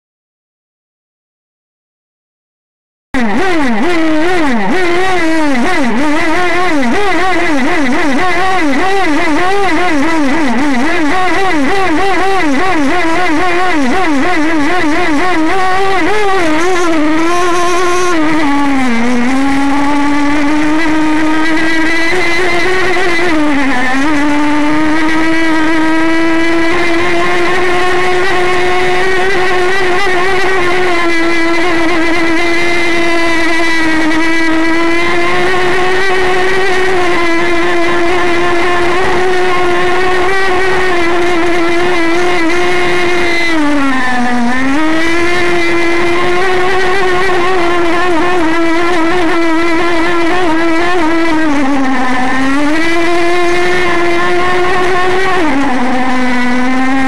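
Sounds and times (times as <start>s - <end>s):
model boat engine at high revs: 3.2s - 57.0s.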